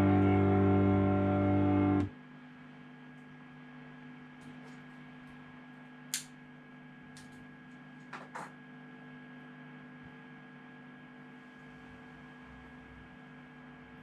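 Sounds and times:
electric guitar chord ringing: 0.0s - 2.1s
amplifier mains hum: 0.0s - 14.0s.

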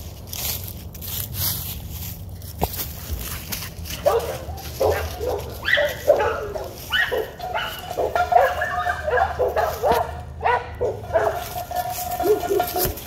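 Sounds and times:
puppy yipping: 4.0s - 13.0s
puppy whining: 4.1s - 10.1s.

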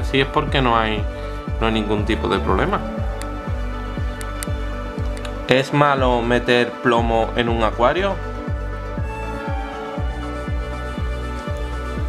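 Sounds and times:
low drum beat: 0.0s - 6.3s
music with held tones: 0.0s - 12.0s.

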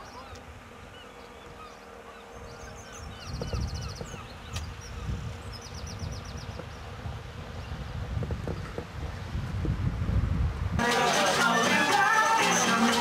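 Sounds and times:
birds chirping and trilling: 0.0s - 8.8s
wind buffeting microphone: 2.3s - 10.8s.

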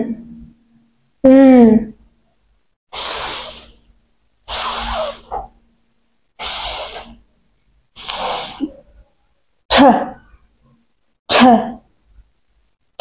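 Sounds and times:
girl making hissing s sound: 2.9s - 3.8s, 4.5s - 5.5s, 6.4s - 7.2s, 8.0s - 8.8s.

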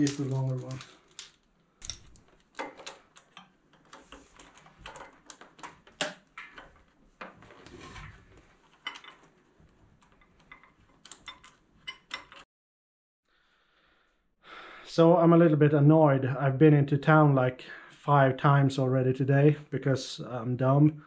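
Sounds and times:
metal hose fittings clinking: 8.7s - 9.3s, 10.0s - 12.4s.

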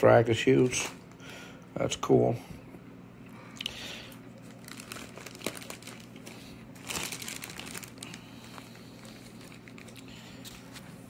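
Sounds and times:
plastic bag crinkling: 4.4s - 10.9s.

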